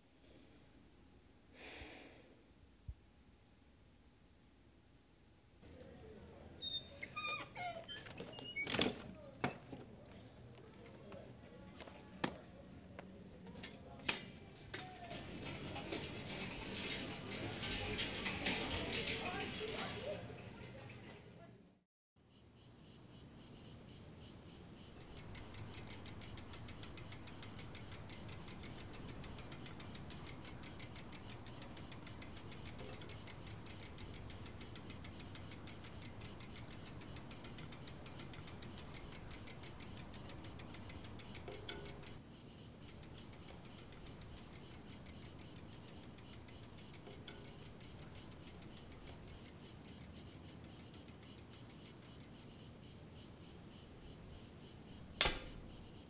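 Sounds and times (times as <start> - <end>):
insects chirping: 22.2 - 56.0
steady high hum: 22.8 - 56.0.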